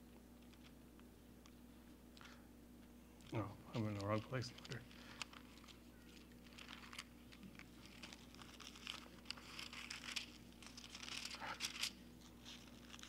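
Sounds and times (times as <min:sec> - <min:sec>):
pages rustling: 0:03.2 - 0:13.0.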